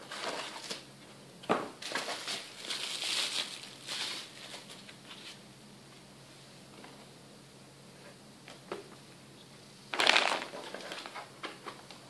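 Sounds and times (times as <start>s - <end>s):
packing material rustling and crinkling: 1.8s - 5.4s, 10.0s - 11.3s.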